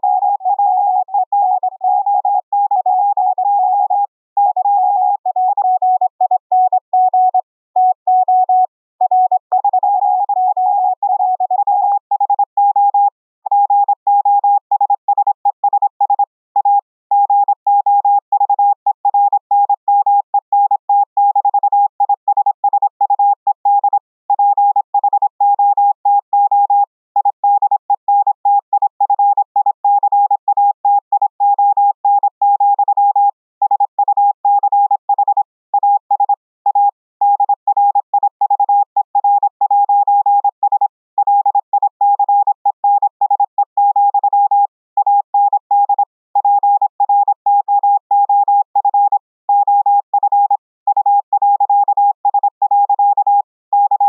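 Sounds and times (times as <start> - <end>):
morse code tone: 0.0 - 14.5.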